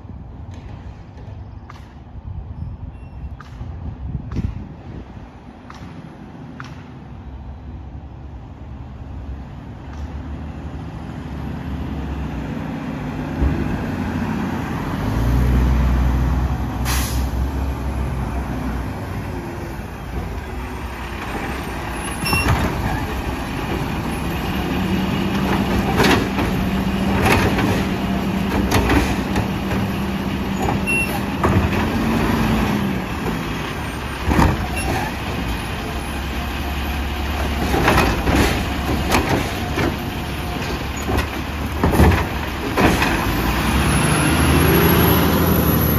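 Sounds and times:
garbage truck engine: 7.5 - 45.9
air brake hiss: 16.8 - 17.4
metal clanks of loader arm: 21.3 - 24.0, 25.2 - 32.1, 37.4 - 43.3.

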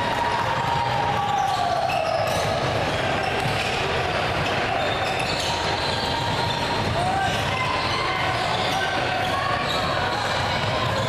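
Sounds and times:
gym hall noise: 0.0 - 11.0
sneakers squeaking: 0.1 - 11.0.

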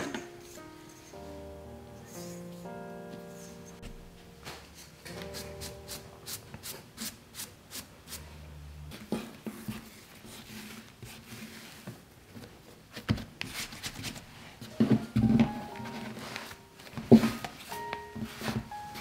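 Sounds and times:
dough rustling: 8.9 - 19.0
pastry brush stroking dough: 9.6 - 12.1.

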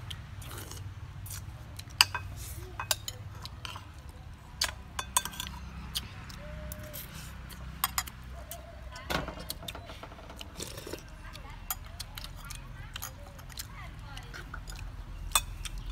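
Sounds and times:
spoons clinking on plates: 1.9 - 3.9, 4.6 - 5.6, 7.8 - 8.2, 14.4 - 15.8.

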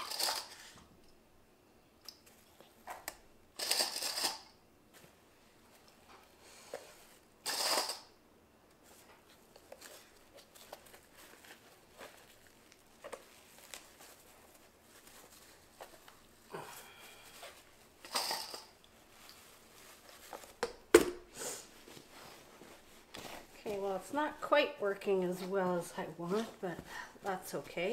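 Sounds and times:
plastic wrap crinkling: 8.8 - 21.0, 21.6 - 27.9
felt hood rustling: 21.7 - 27.9.

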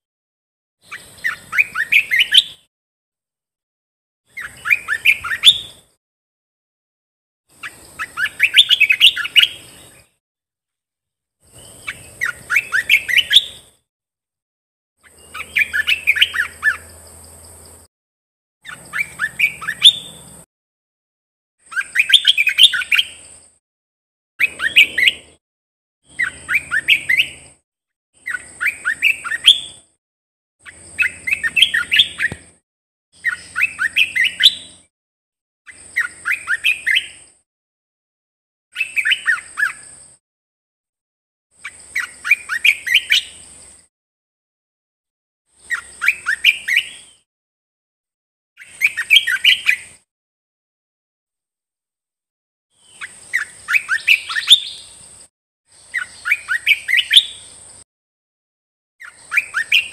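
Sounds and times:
bird singing: 0.8 - 2.7, 4.3 - 5.9, 7.5 - 10.1, 11.4 - 13.8, 15.0 - 17.9, 18.6 - 20.4, 21.6 - 23.4, 24.4 - 25.4, 26.0 - 27.6, 28.2 - 29.9, 30.6 - 32.6, 33.2 - 34.9, 35.7 - 37.4, 38.8 - 40.2, 41.6 - 43.9, 45.6 - 47.3, 48.6 - 50.0, 52.8 - 57.8, 59.0 - 59.9.

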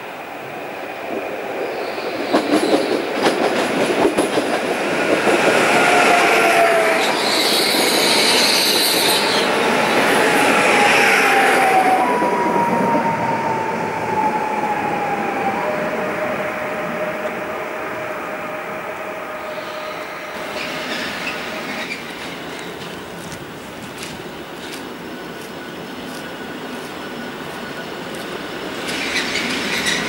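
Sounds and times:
high hiss of passing train: 0.0 - 30.0
train wheels clicking on rails: 1.0 - 11.4, 20.3 - 30.0.

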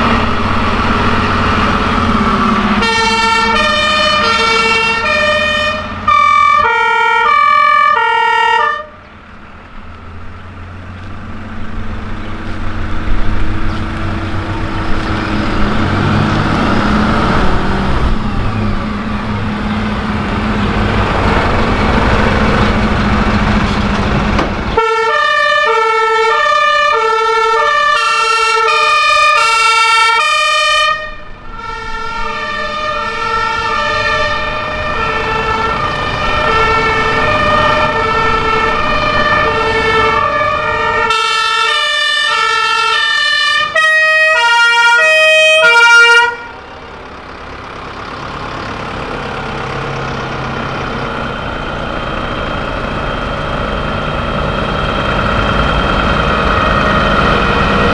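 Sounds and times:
two-tone fire engine sirens: 0.0 - 9.1, 14.0 - 23.6, 24.6 - 57.9
diesel fire truck engine rumbling: 0.0 - 57.9
faint second siren: 2.2 - 9.0, 24.8 - 47.2.

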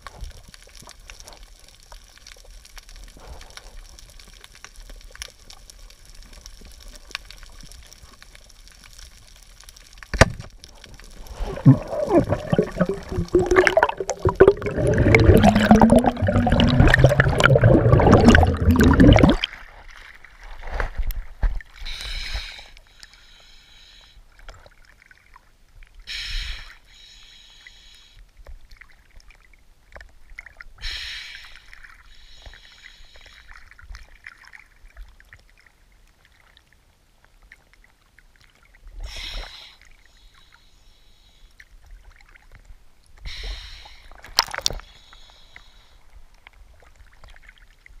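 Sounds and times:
underwater rush of water: 0.0 - 20.8
underwater whooshing surge: 11.2 - 19.5.

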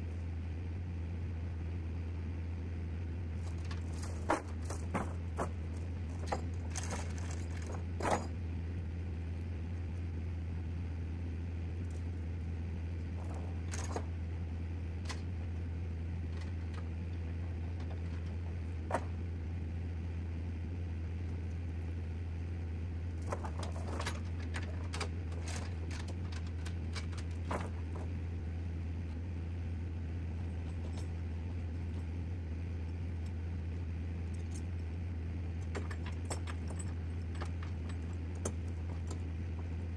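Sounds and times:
vehicle engine droning: 0.0 - 39.9
metallic jingles and rattling clicks: 3.4 - 8.3, 13.2 - 14.1, 23.2 - 28.1, 35.6 - 39.8.

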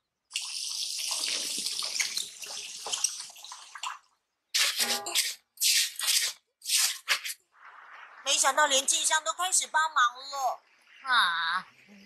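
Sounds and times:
tap water running into sink: 0.3 - 4.0.

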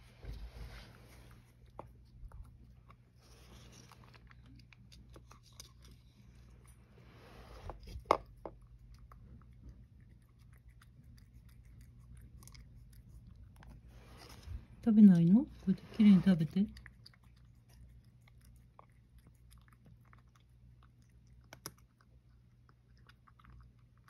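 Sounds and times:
cat chewing and licking: 0.0 - 24.0.

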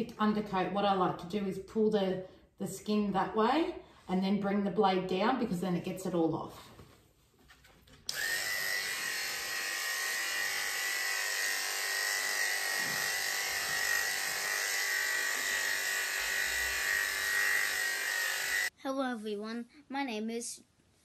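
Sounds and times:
electric clippers buzzing: 8.1 - 18.7.

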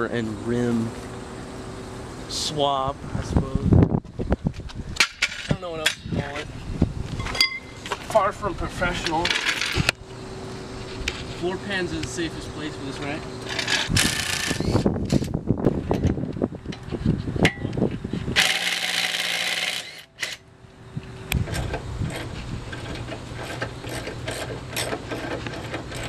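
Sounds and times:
cordless drill spinning: 13.4 - 15.2, 18.4 - 20.4.

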